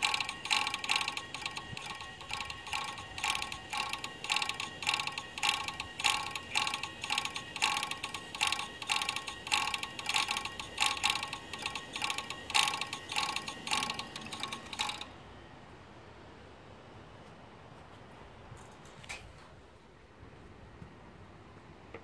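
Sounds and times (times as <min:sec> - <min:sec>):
hard drive mechanical chatter: 0:00.0 - 0:15.5
hard drive whine: 0:00.0 - 0:17.5.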